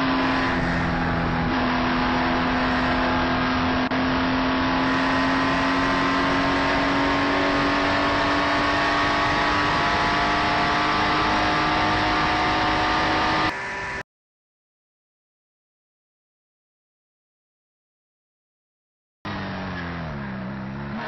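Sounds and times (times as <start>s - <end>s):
car engine at high revs: 0.0s - 14.0s, 19.3s - 21.0s.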